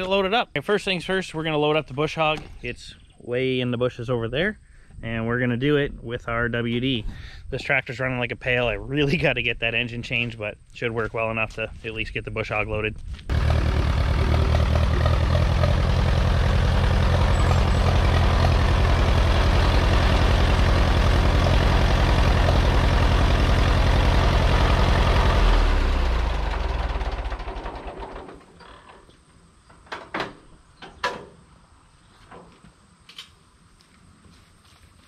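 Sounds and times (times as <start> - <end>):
tractor engine running: 13.3 - 28.5.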